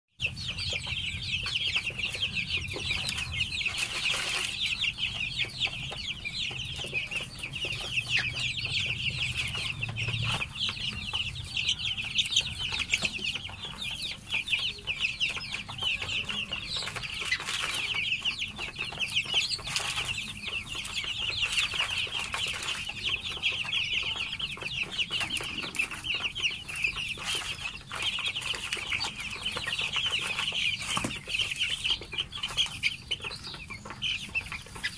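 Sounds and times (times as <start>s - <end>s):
chicks peeping: 0.2s - 34.9s.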